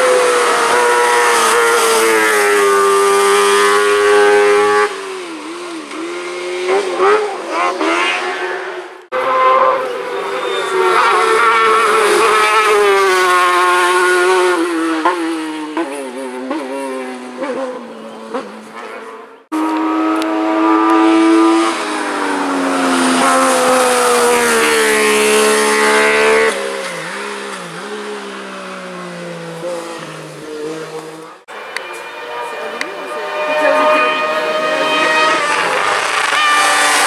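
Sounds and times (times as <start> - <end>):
race car engines revving hard: 0.0 - 37.0.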